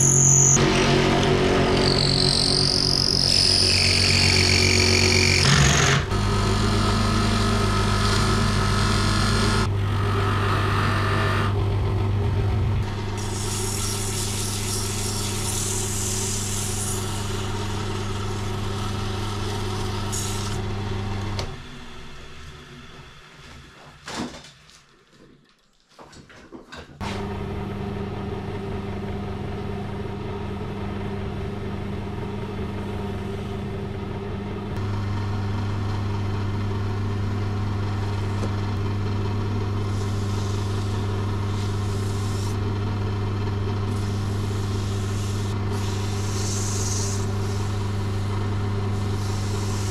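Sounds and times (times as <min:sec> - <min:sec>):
lathe motor hum: 0:00.4 - 0:22.9, 0:27.1 - 0:49.9
drill bit hissing on wood: 0:13.2 - 0:20.6, 0:39.9 - 0:42.6, 0:43.9 - 0:48.3, 0:48.9 - 0:49.9
sandpaper on spinning wood: 0:13.2 - 0:20.6, 0:39.8 - 0:42.6, 0:43.9 - 0:48.3, 0:48.9 - 0:49.9.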